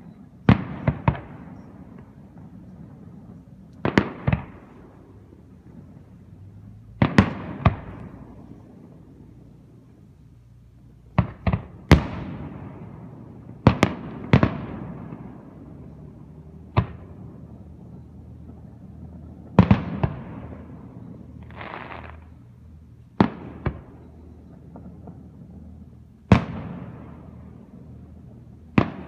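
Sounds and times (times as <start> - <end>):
firework shells booming: 0.1 - 9.0, 11.1 - 22.4, 23.2 - 29.0
short firework hiss: 21.4 - 22.4.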